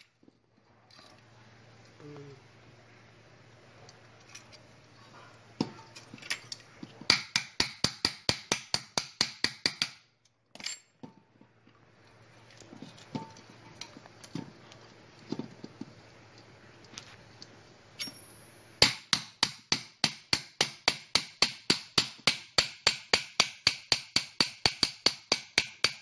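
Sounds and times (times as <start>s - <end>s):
small metal parts clinking: 5.8s - 6.7s, 18.0s - 18.5s.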